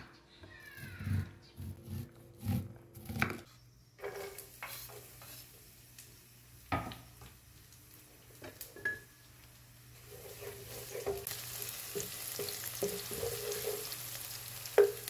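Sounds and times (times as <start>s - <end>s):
oil sizzling in frying pan: 4.4s - 15.0s.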